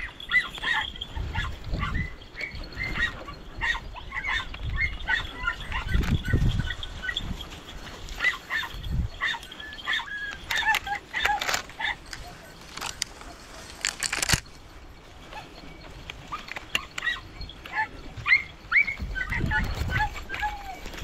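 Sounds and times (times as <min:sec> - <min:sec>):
hounds yelping: 0:00.0 - 0:21.0.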